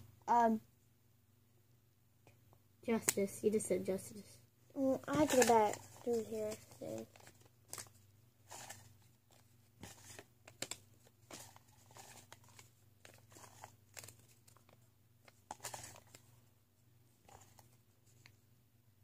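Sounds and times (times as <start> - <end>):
handling rustles and clicks: 5.0 - 7.9, 8.5 - 16.3.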